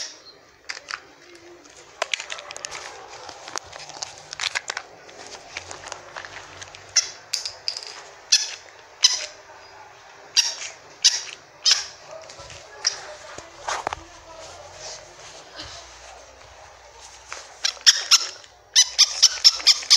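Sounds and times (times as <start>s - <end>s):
handling clicks and rustling: 0.6s - 19.9s
toy puppy squeaky electronic yaps: 8.3s - 9.4s, 10.4s - 12.0s, 17.6s - 19.9s.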